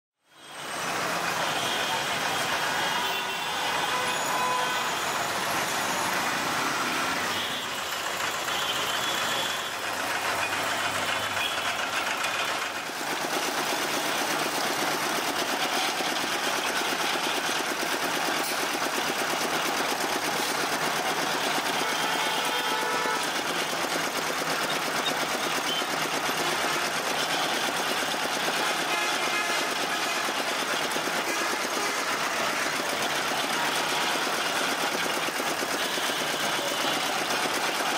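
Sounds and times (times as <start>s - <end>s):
street traffic: 0.2s - 37.9s
sugarcane crusher running: 7.8s - 37.9s.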